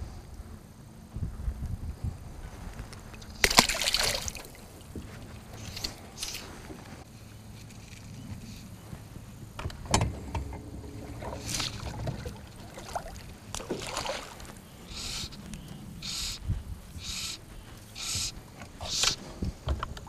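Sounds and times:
splashy rustles: 0:03.1 - 0:06.7, 0:10.2 - 0:15.5.

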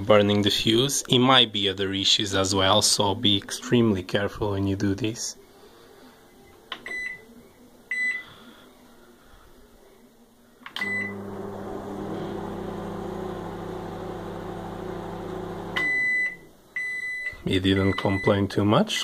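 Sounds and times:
microwave keypad beeps: 0:06.8 - 0:07.3, 0:07.9 - 0:08.2, 0:10.8 - 0:11.2, 0:15.8 - 0:18.4
microwave oven humming: 0:10.8 - 0:16.5.

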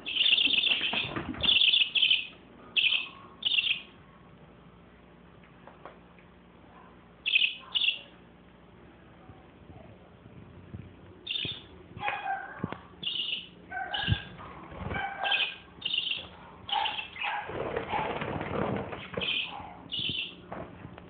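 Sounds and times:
parakeets chirping: 0:00.0 - 0:03.9, 0:07.2 - 0:08.1, 0:11.2 - 0:12.4, 0:13.0 - 0:18.0, 0:19.0 - 0:20.4
wings fluttering: 0:00.1 - 0:01.8, 0:13.9 - 0:20.8.

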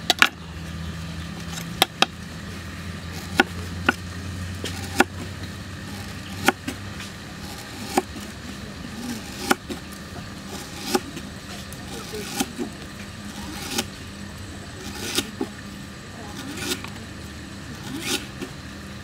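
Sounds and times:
knife chopping on wooden board: 0:03.2 - 0:04.0, 0:04.6 - 0:05.3, 0:05.9 - 0:08.2, 0:10.5 - 0:11.2.

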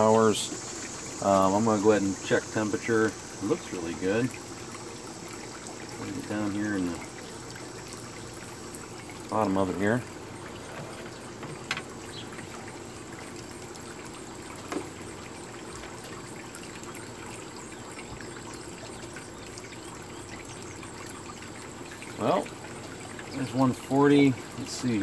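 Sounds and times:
steady rushing hiss: 0:00.0 - 0:17.7.

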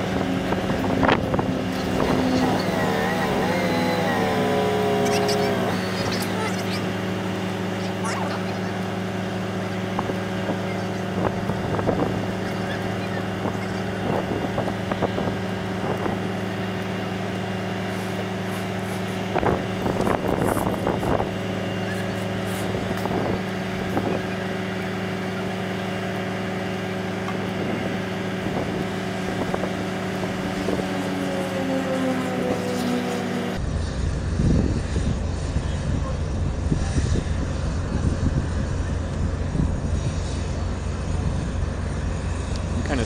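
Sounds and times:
heavy vehicle engine idling: 0:00.0 - 0:33.8
brief voices: 0:01.7 - 0:07.1.

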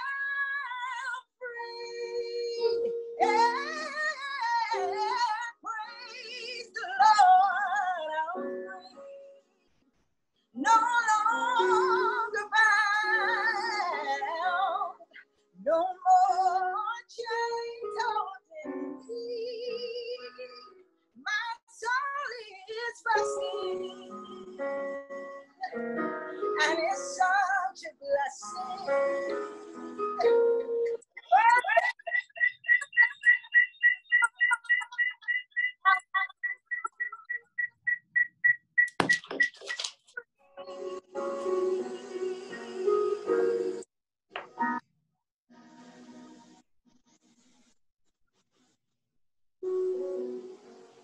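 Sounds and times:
woman singing with vibrato: 0:00.0 - 0:08.8, 0:10.6 - 0:15.0, 0:21.3 - 0:24.6, 0:26.4 - 0:30.4.

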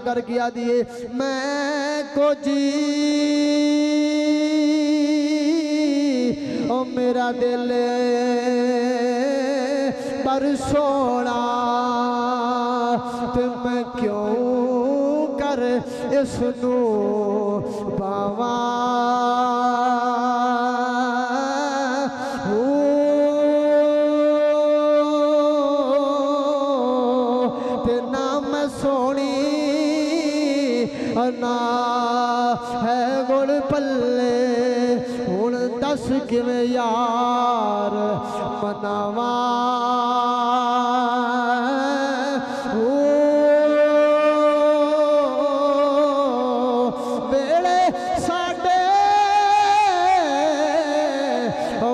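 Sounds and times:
man singing long held note: 0:00.0 - 0:51.9.

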